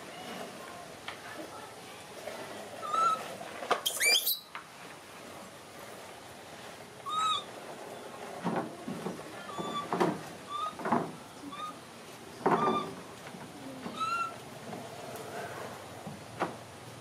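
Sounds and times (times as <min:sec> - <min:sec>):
toy truck rolling on wood: 0:00.0 - 0:11.2, 0:12.4 - 0:16.6
baby monkey cooing: 0:03.9 - 0:04.4, 0:13.9 - 0:14.4
baby monkey squealing: 0:03.9 - 0:04.5, 0:07.1 - 0:07.5, 0:14.0 - 0:14.4.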